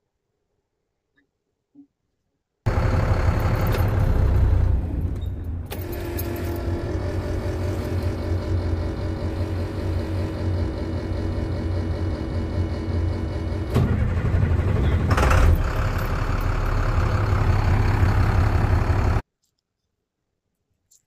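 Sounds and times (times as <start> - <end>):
truck engine running: 2.7 - 19.2.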